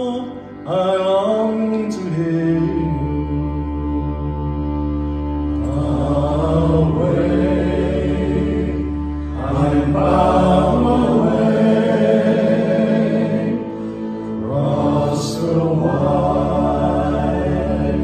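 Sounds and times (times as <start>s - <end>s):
bowed cello: 0.0s - 18.0s
male choir singing in harmony: 5.4s - 18.0s.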